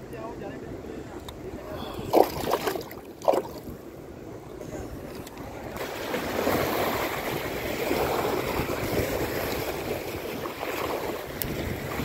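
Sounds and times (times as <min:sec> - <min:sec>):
sea waves washing over rocks: 0:05.7 - 0:12.0.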